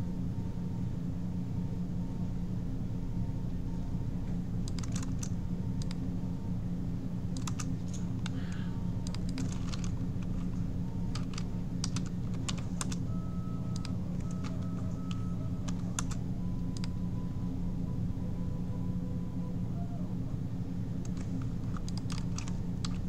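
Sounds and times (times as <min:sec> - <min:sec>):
steady low hum: 0:00.0 - 0:23.0
keyboard key clicks: 0:04.7 - 0:06.0, 0:07.4 - 0:08.3, 0:09.0 - 0:10.5, 0:11.1 - 0:13.0, 0:13.7 - 0:16.2, 0:21.0 - 0:23.0.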